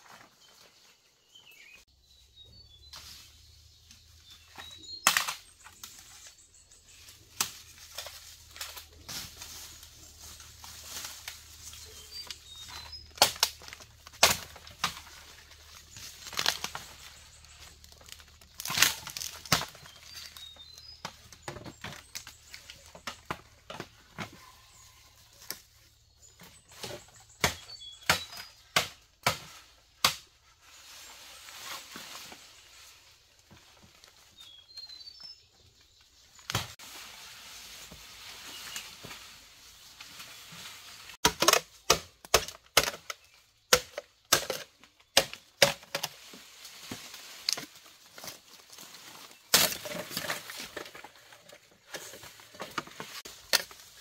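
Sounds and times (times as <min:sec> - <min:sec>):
leaves rustling: 0:00.0 - 0:23.3, 0:29.6 - 0:41.2, 0:45.5 - 0:54.0
dry twigs cracking underfoot: 0:07.1 - 0:23.5.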